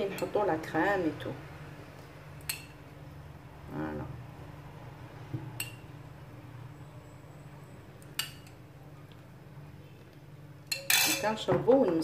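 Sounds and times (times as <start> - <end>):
low steady hum: 0.0 - 12.0
metal spoon clinking on glass bowl: 10.7 - 11.4.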